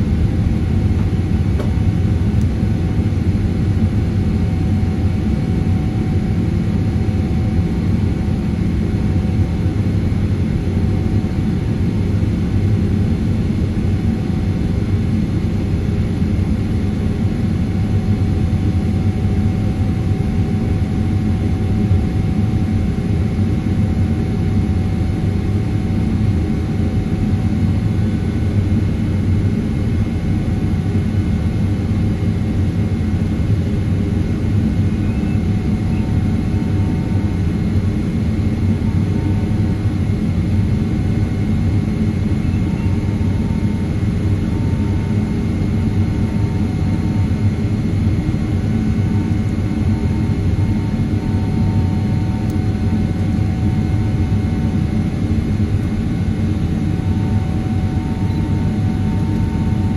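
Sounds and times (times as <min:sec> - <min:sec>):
jet engines rumbling: 0:00.0 - 0:08.9, 0:31.0 - 0:59.9
faint steady whines: 0:00.0 - 0:59.9.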